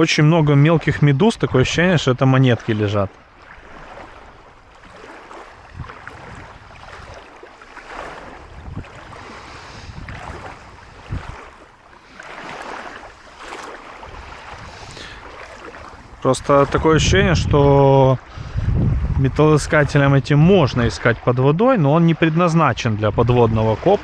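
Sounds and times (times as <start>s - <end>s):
seawater sloshing around legs: 2.6s - 16.9s
wind buffeting microphone: 3.6s - 21.2s.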